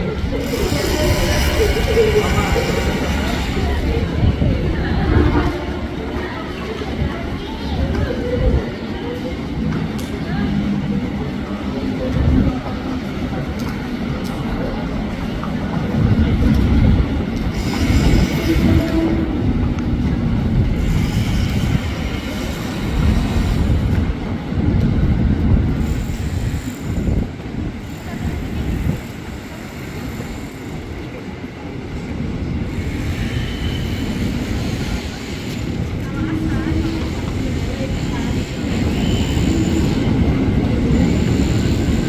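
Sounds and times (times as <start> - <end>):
train wheels rumbling on rails: 0.0 - 42.0
high wheel squeals: 38.2 - 42.0.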